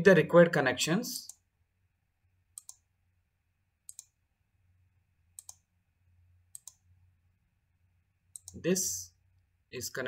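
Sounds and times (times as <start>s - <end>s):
computer mouse clicking: 2.5s - 2.9s, 3.8s - 4.2s, 5.4s - 5.7s, 6.5s - 6.8s, 8.3s - 8.6s.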